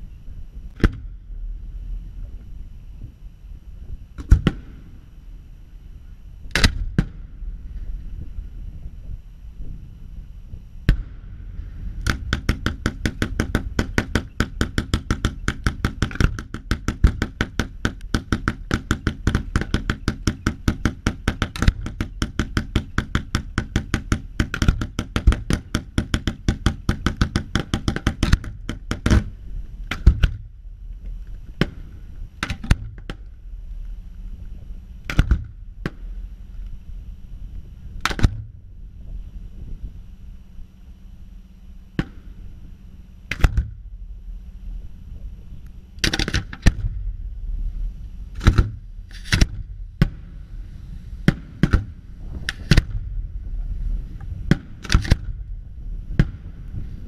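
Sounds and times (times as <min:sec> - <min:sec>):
fireworks sharp bangs: 0:51.2 - 0:53.2.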